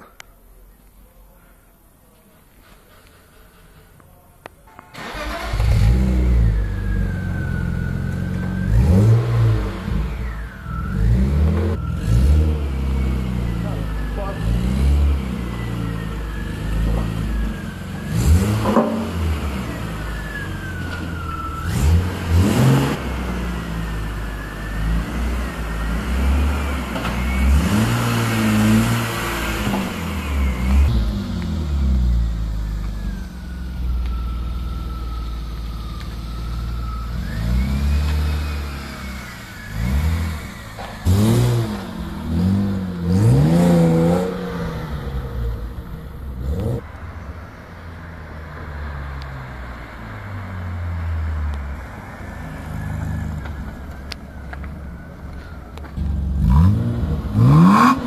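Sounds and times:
car engine idling and revving: 0:05.0 - 0:58.0.

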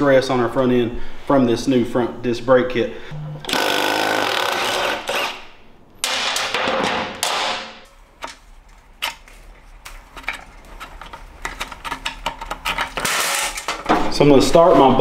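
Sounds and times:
harsh tool noise: 0:03.4 - 0:07.6, 0:10.7 - 0:13.9.

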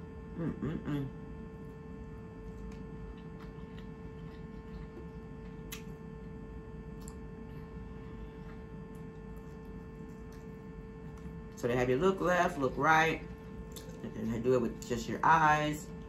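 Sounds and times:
steady electrical hum: 0:00.0 - 0:16.0
person chewing: 0:01.6 - 0:11.6, 0:13.4 - 0:14.2.

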